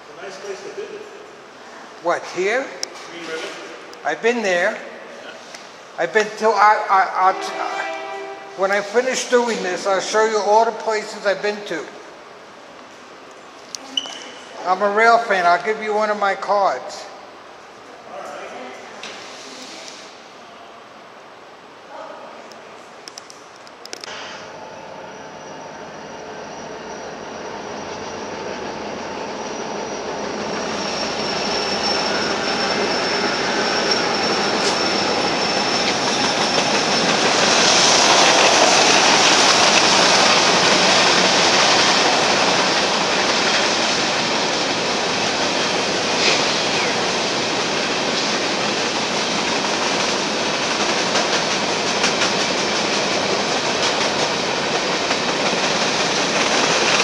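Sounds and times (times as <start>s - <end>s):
diesel locomotives passing: 0.0s - 13.6s, 24.1s - 57.0s
thin high whine: 7.0s - 9.8s, 24.1s - 40.2s
freight cars rumbling: 24.1s - 57.0s.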